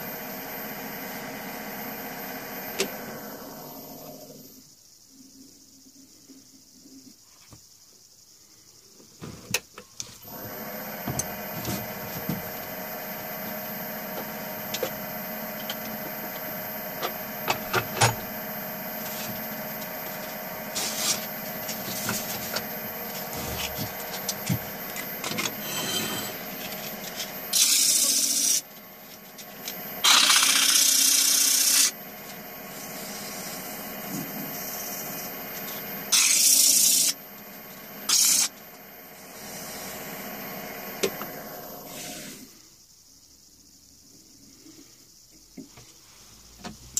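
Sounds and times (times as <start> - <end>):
lathe motor whine: 0.0 - 4.6, 10.2 - 42.5
sandpaper hissing on spinning wood: 19.0 - 24.6, 25.6 - 28.6, 36.1 - 37.2.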